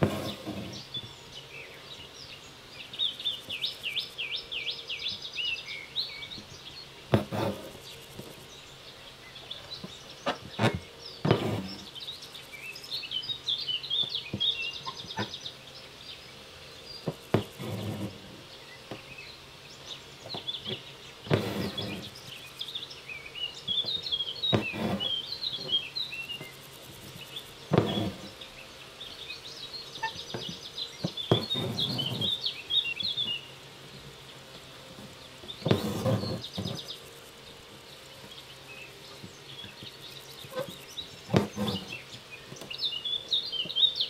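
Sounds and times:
small birds chirping: 0:00.0 - 0:44.0
thread rasping through fabric: 0:07.1 - 0:08.4, 0:10.4 - 0:11.9, 0:17.2 - 0:18.2, 0:20.7 - 0:22.1, 0:24.5 - 0:25.7, 0:27.7 - 0:28.3, 0:30.4 - 0:32.4, 0:35.6 - 0:36.9, 0:40.5 - 0:42.0.

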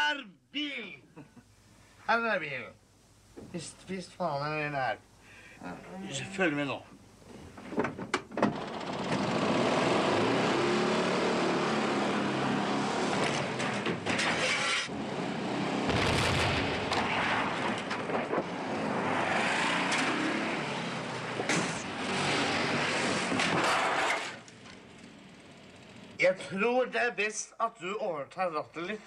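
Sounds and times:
van engine revving hard: 0:08.8 - 0:13.6
loud engine burst: 0:15.8 - 0:18.5.

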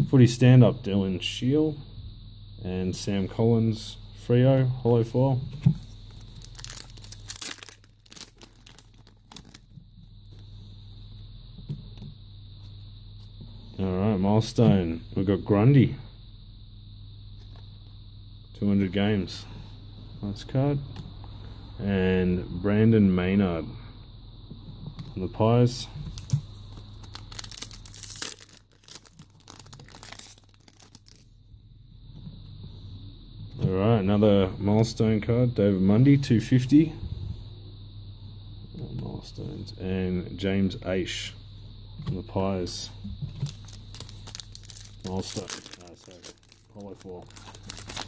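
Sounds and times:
faint handling of cards: 0:05.5 - 0:10.7, 0:26.0 - 0:31.3, 0:43.3 - 0:48.0
card pack wrapper crinkling: 0:06.1 - 0:09.8, 0:26.1 - 0:31.3, 0:43.4 - 0:48.0.

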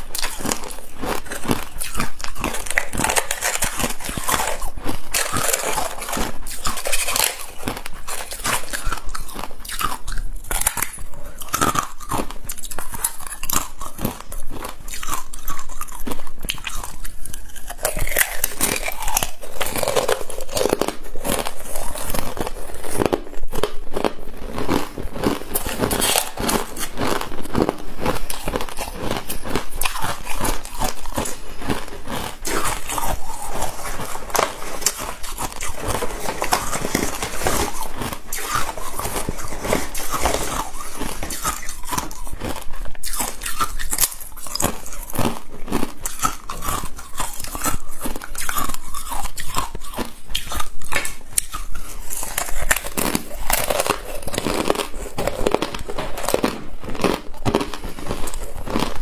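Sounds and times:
chewing crunchy ice: 0:00.0 - 0:59.0.

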